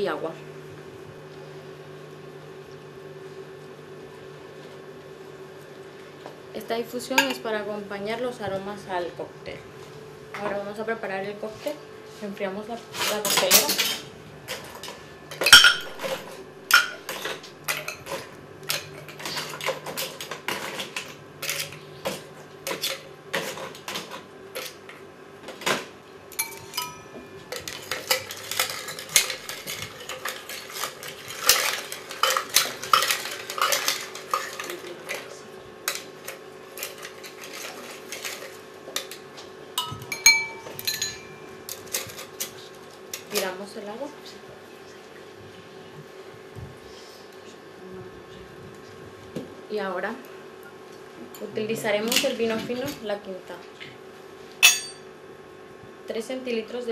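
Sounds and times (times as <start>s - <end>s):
spoon stirring ice in shaker: 27.5s - 35.3s, 35.9s - 39.2s.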